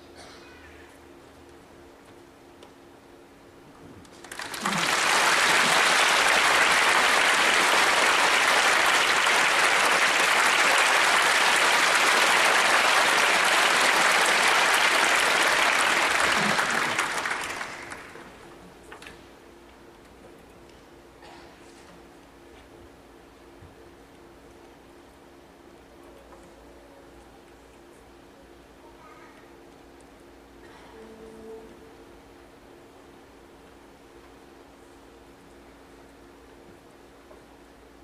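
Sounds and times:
audience applause: 0:04.2 - 0:18.4.

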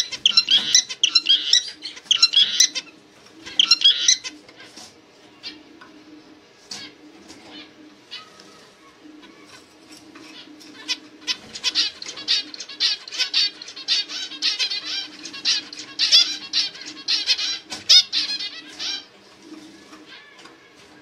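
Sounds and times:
finch chirping: 0:00.0 - 0:04.7, 0:10.3 - 0:19.2.

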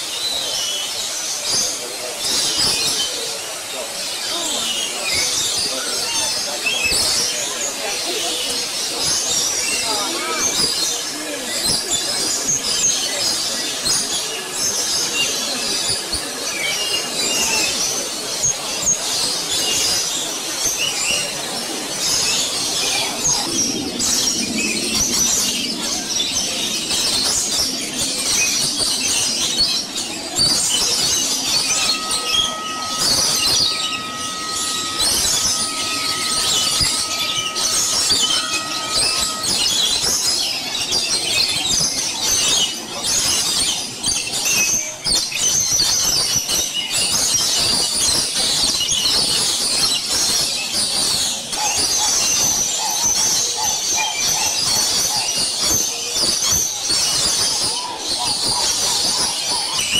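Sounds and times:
steady whistled tone: 0:00.0 - 0:47.6
birds chirping and squawking: 0:00.0 - 0:59.9.

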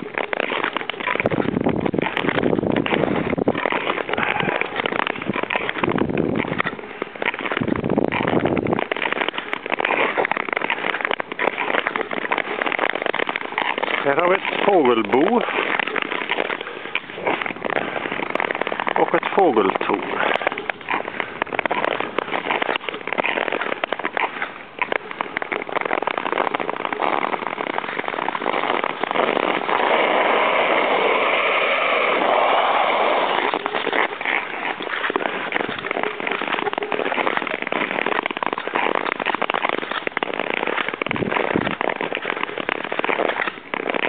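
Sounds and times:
skate blades scraping ice: 0:00.0 - 0:44.0.

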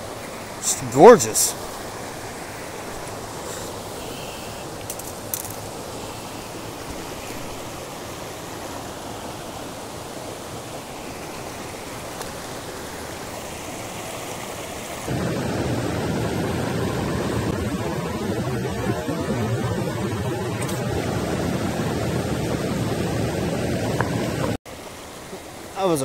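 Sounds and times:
mountain stream rushing: 0:00.0 - 0:26.0.

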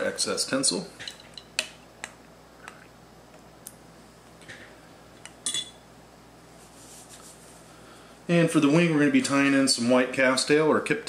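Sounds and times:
metallic clink: 0:05.4 - 0:05.8.

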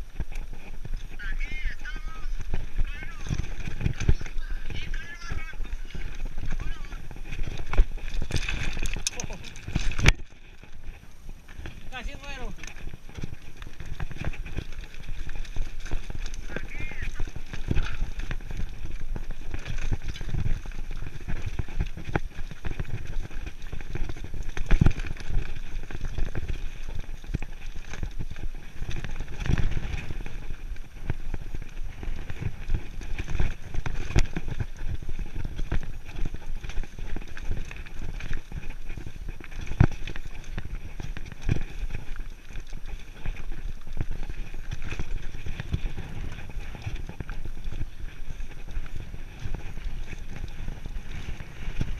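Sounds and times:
bike knocking and rattling: 0:00.0 - 0:51.9
bike tyres crunching on gravel: 0:00.0 - 0:51.9.

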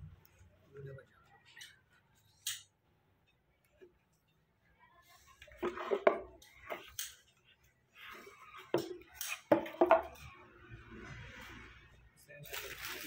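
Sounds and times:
wooden bats knocking together: 0:08.7 - 0:10.2.

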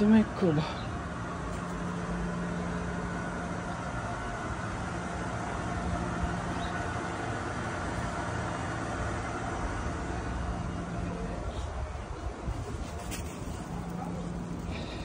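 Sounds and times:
low even hum: 0:00.0 - 0:15.0.

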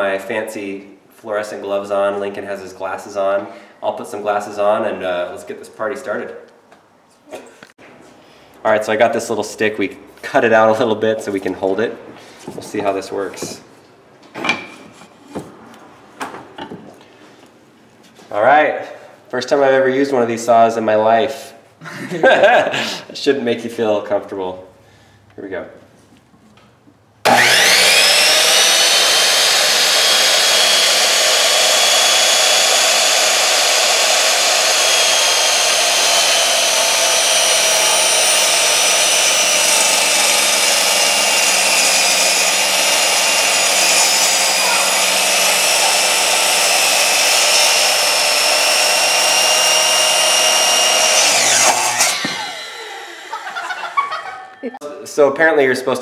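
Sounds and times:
saw blade cutting rubber: 0:27.3 - 0:54.0
miter saw motor whine: 0:27.3 - 0:54.6.

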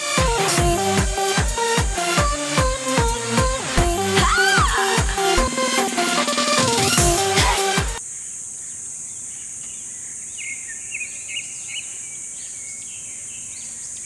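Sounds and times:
electronic dance music: 0:00.0 - 0:08.0
birds chirping: 0:08.0 - 0:14.0
steady high-pitched hiss: 0:08.0 - 0:14.0.

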